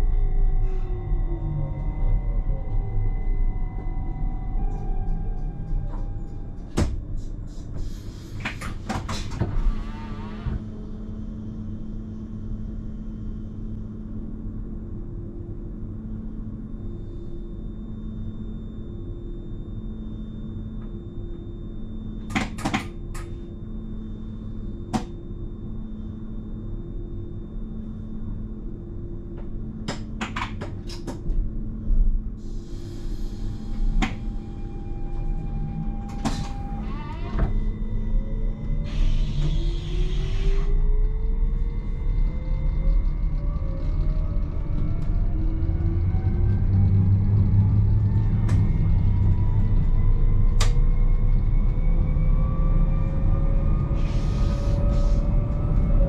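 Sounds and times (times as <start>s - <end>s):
pulsing low tone: 0.0s - 7.6s, 31.7s - 56.0s
train equipment hum: 0.0s - 18.4s, 19.0s - 56.0s.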